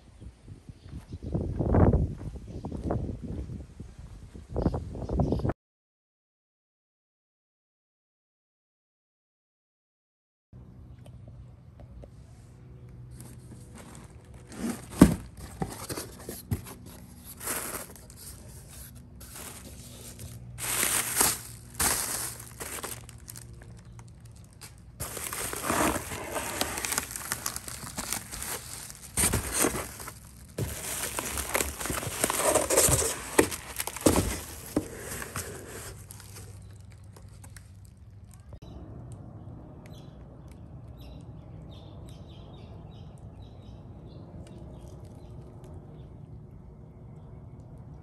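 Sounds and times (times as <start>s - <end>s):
tape tearing: 13.7s - 37.7s
bubble wrap crinkling: 13.7s - 38.0s.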